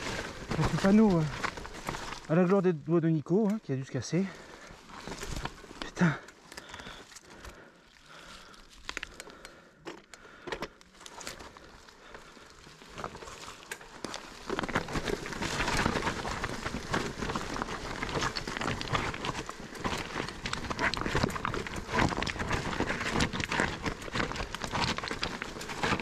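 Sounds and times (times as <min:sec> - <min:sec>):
bike tyres rolling over dirt: 0:00.0 - 0:26.0
bike frame and chain rattling: 0:08.1 - 0:26.0.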